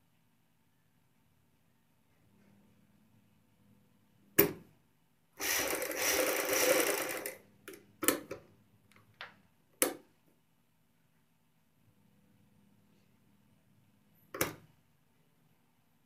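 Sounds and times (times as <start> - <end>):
sewing machine running: 5.4 - 7.4.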